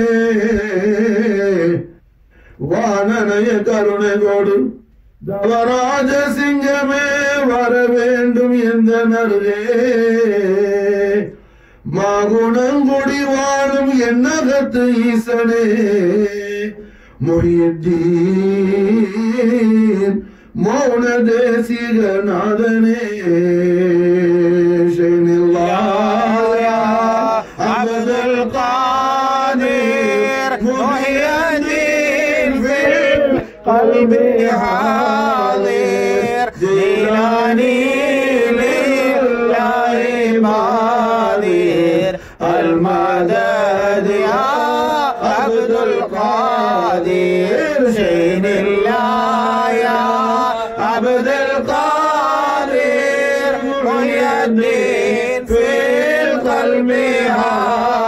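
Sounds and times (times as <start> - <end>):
man singing a chant: 0.0 - 58.0.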